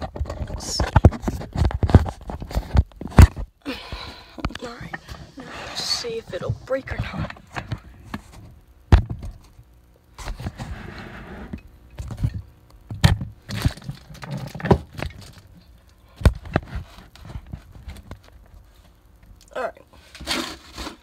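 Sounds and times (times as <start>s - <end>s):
knocks and thumps on workbench: 8.9s - 9.3s.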